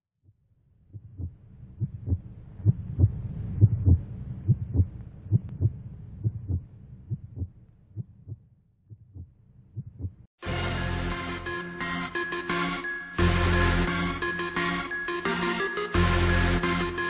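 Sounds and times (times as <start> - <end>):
low hum: 0.6 - 10.3
heartbeat thumps: 0.9 - 10.3.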